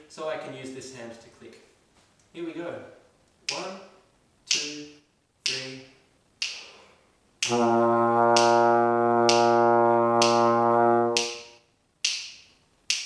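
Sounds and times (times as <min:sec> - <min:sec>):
finger clicks: 0:06.4 - 0:06.7
trombone sustained low note: 0:07.5 - 0:11.4.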